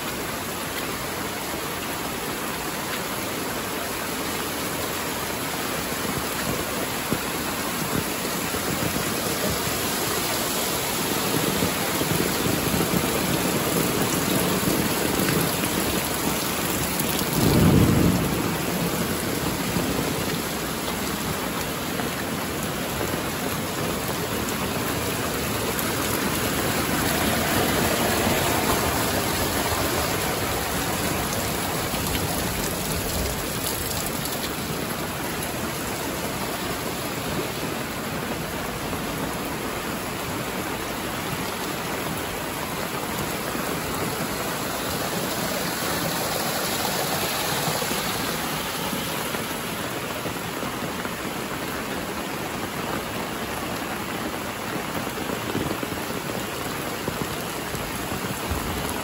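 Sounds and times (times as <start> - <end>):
heavy rain: 0.0 - 59.0.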